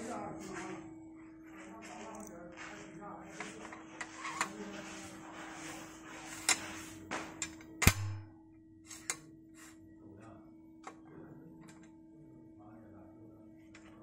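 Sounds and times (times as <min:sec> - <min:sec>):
metal axle scraping: 0:03.9 - 0:04.7.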